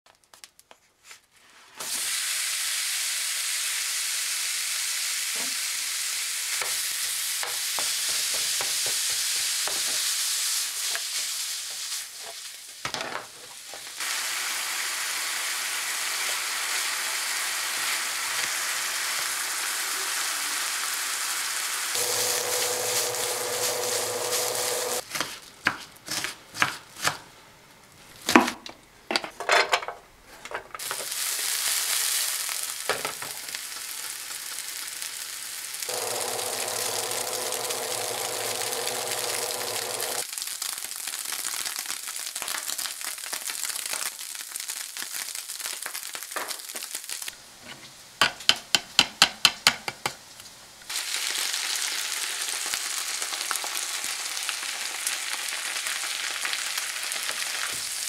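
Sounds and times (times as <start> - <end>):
meat sizzling in a skillet: 1.8 - 25.0, 30.8 - 47.4, 50.9 - 58.0
onions sizzling in pan: 1.8 - 25.1, 30.8 - 47.4, 50.9 - 58.0
wooden spoon stirring: 22.0 - 25.1.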